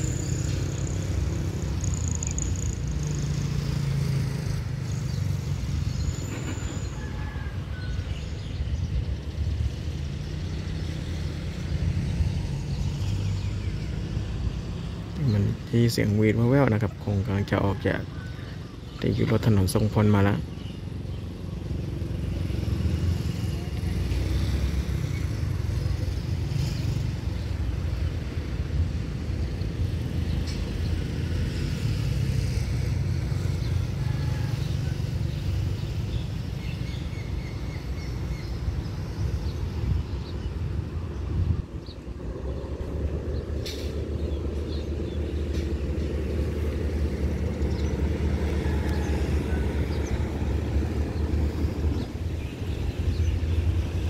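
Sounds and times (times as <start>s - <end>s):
low engine rumble: 38.6s - 54.0s.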